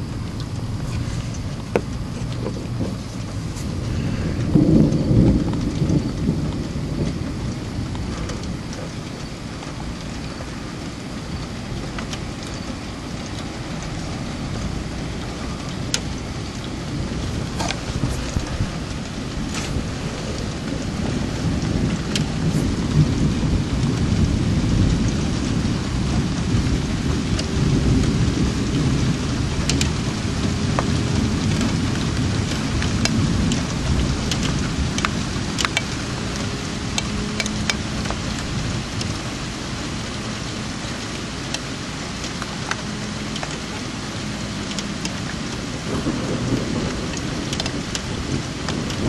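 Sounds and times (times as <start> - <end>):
rain falling: 0.0 - 49.0
rumble of thunder: 0.0 - 49.0.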